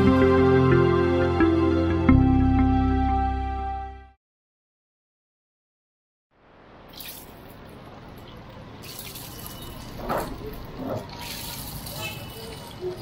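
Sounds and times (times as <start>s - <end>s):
oil spattering: 6.9s - 13.0s.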